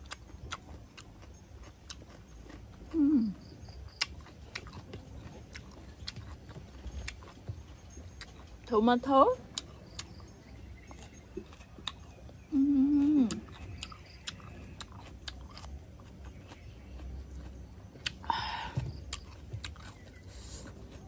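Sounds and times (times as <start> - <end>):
person chewing wetly: 0.0 - 8.7, 9.3 - 21.0
person humming mmm: 2.9 - 3.5, 12.5 - 13.6
breathy sound: 18.2 - 18.9.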